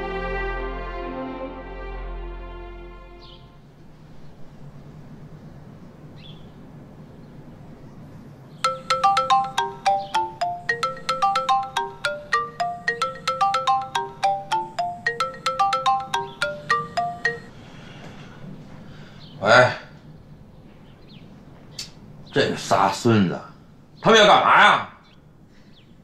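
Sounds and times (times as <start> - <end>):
mobile phone ringtone: 8.6 - 17.5.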